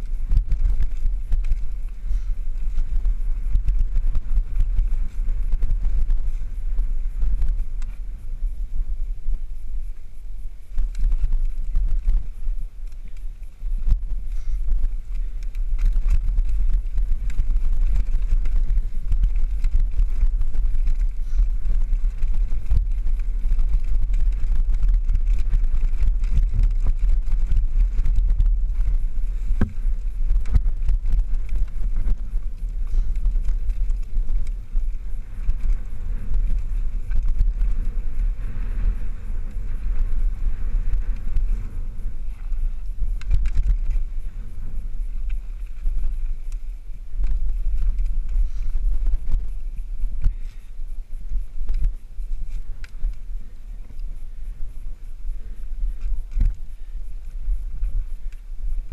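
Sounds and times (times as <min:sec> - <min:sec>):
bike rattling over bumps: 0:00.0 - 0:58.9
wind rumbling on microphone: 0:00.0 - 0:58.9.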